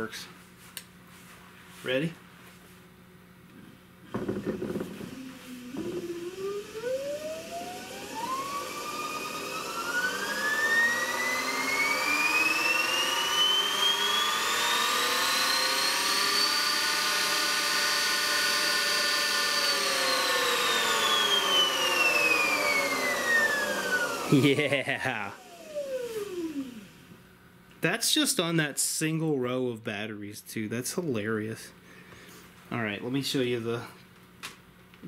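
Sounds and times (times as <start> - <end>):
electric motor whine: 4.1 - 27.2.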